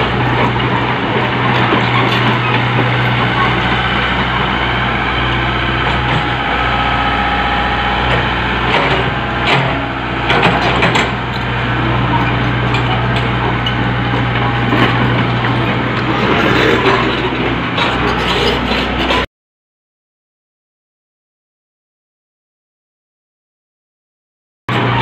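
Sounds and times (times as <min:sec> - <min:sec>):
excavator diesel engine running: 0:00.0 - 0:19.3, 0:24.7 - 0:25.0.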